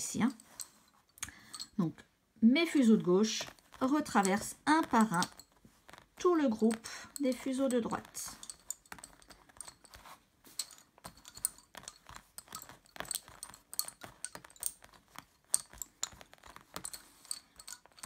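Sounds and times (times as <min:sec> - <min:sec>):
wooden bobbins clicking together: 0:10.6 - 0:18.0.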